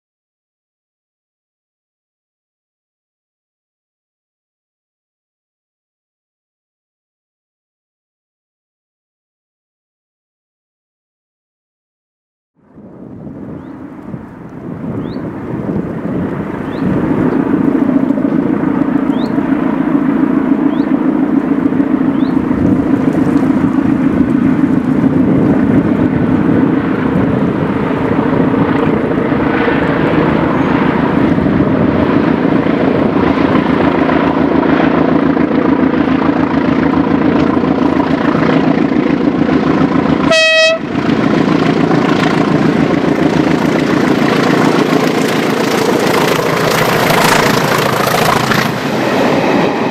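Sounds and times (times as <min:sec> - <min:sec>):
train horn toot: 0:40.3 - 0:40.9.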